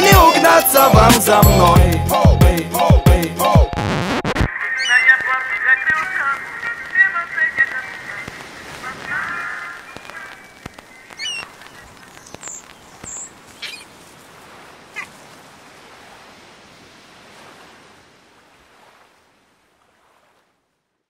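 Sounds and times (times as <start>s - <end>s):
sea surf washing: 4.5s - 20.5s
gull cries: 4.6s - 5.2s, 9.2s - 11.6s.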